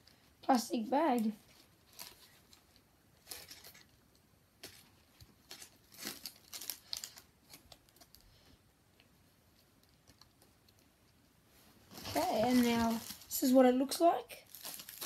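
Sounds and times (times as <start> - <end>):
plastic bag crinkling: 1.0 - 8.3, 11.9 - 15.0.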